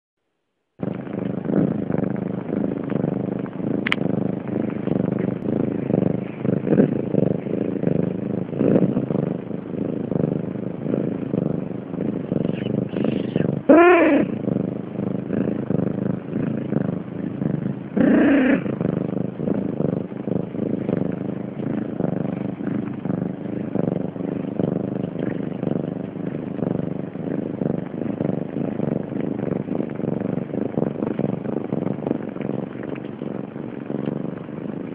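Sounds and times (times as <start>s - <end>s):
cat purring: 0.8s - 34.9s
kitten mewing: 12.4s - 14.6s, 17.9s - 18.9s.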